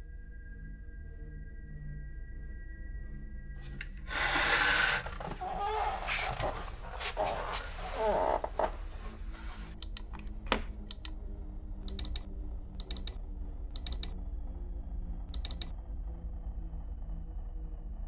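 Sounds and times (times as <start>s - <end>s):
computer mouse clicking: 9.8s - 11.2s, 11.8s - 14.2s, 15.3s - 15.7s.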